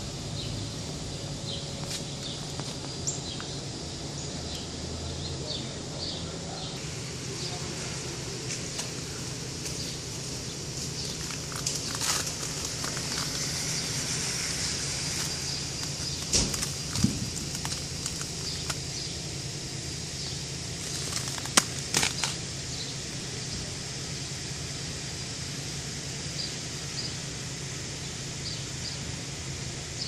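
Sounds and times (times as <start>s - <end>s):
outdoor hiss: 0.0s - 30.0s
sharp clicks and cracks: 11.2s - 13.4s, 15.2s - 18.9s, 20.8s - 22.4s.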